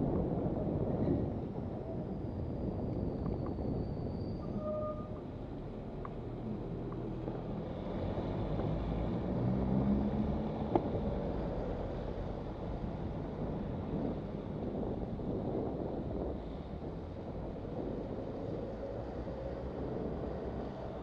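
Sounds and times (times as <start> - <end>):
wind buffeting microphone: 0.0 - 21.0.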